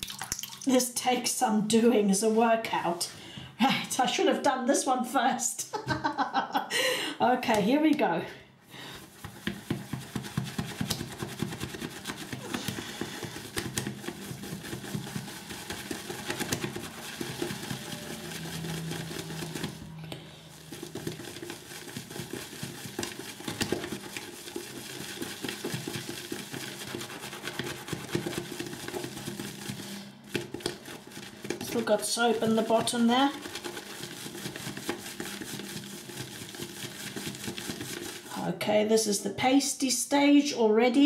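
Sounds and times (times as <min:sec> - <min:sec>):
shaving brush swishing in bowl: 0:09.0 - 0:38.6.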